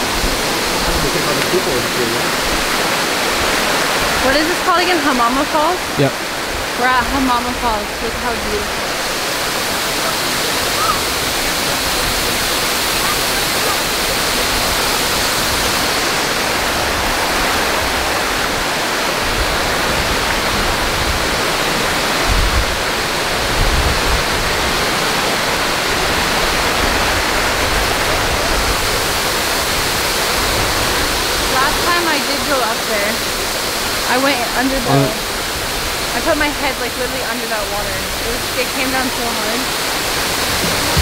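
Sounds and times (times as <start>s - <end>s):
waterfall rushing: 0.0s - 41.0s.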